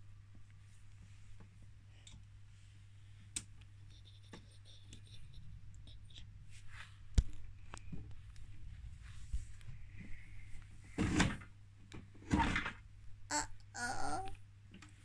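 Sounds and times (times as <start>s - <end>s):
toy clicks and light scrapes: 3.8s - 6.3s.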